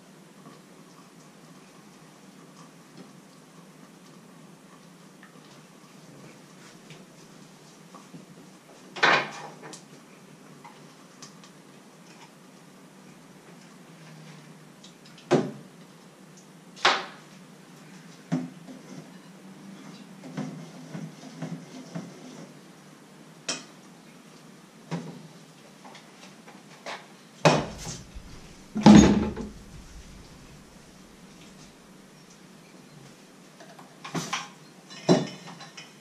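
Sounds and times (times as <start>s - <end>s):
dishes clinking and knocking: 27.5s - 31.7s, 34.9s - 35.9s.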